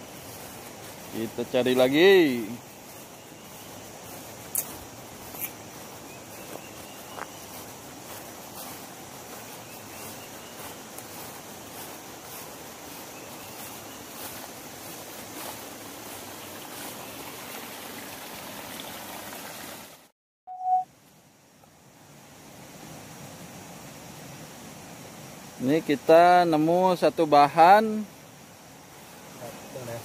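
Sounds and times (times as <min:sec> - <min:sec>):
faint footsteps through grass: 0:00.0 - 0:17.6, 0:24.6 - 0:30.0
stream rushing: 0:00.0 - 0:20.1
forest ambience: 0:00.0 - 0:30.0
loud single-pitched beep: 0:20.5 - 0:20.9.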